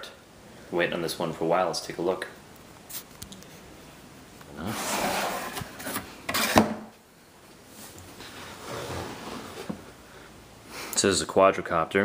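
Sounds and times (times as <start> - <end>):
cardboard lid scraping: 4.6 - 6.8, 8.3 - 9.8.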